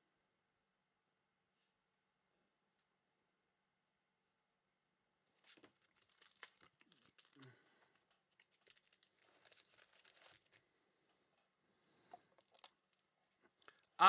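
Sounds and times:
cards and plastic holders rustling: 5.4 - 10.7, 12.0 - 14.0.

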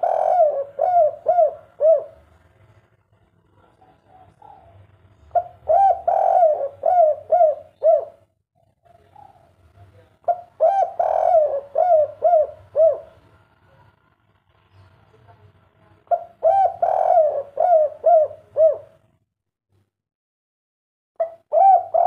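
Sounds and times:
dove cooing: 0.0 - 2.4, 3.8 - 8.3, 10.3 - 13.2, 16.1 - 19.1, 21.2 - 22.0.

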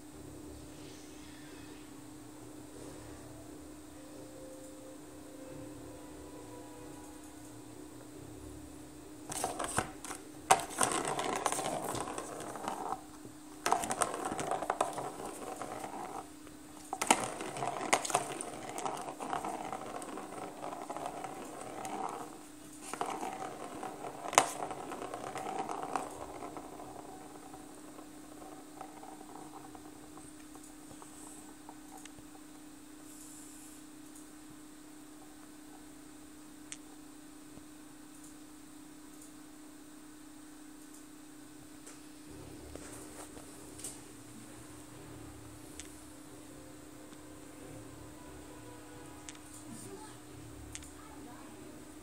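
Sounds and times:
plastic ball rattling around track: 9.2 - 32.5.

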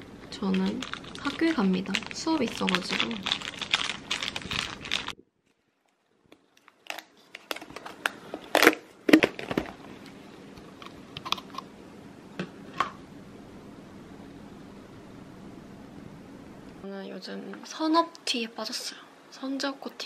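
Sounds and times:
plastic bag crinkling: 0.2 - 9.8.

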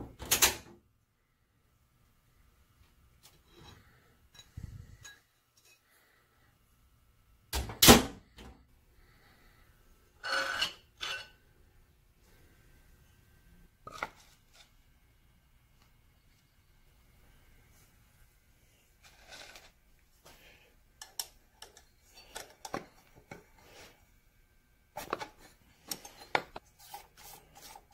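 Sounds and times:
handling knocks and scrapes: 25.0 - 27.9.

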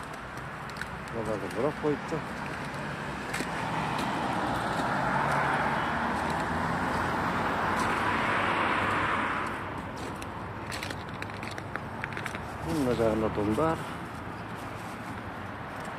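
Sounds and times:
car driving past: 2.8 - 9.6.

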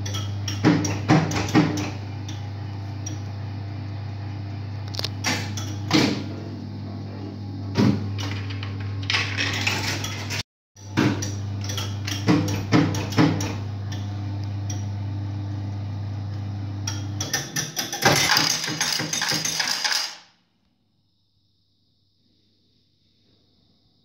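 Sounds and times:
coins rattling into metal tray: 9.0 - 10.4, 17.8 - 20.3
sharp mechanical clacks: 17.2 - 20.3
slot machine humming: 17.8 - 20.2.

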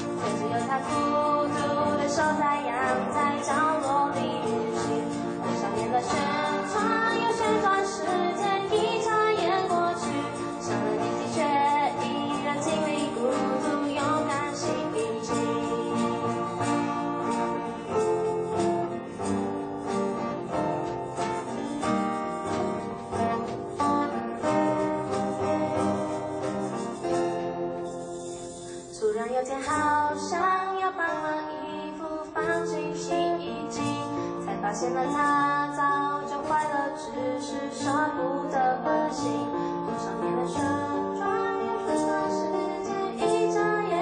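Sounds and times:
woman singing: 0.0 - 19.5, 20.5 - 26.7, 28.8 - 44.0
cajon and shaker beat: 0.0 - 30.2
strummed acoustic guitars: 0.0 - 44.0.

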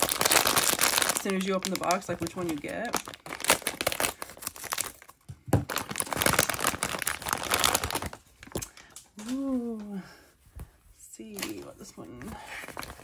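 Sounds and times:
foil bag crinkling: 0.0 - 8.9.

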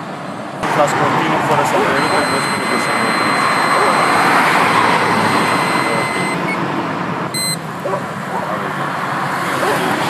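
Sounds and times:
breath tester electronic tone: 1.8 - 6.6, 7.4 - 7.6
short beep: 1.8 - 6.6, 7.4 - 7.6.

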